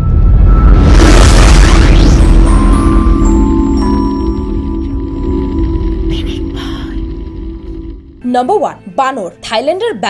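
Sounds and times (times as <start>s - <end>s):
thin high tone: 0.0s - 8.2s
low chord music sting: 0.0s - 8.3s.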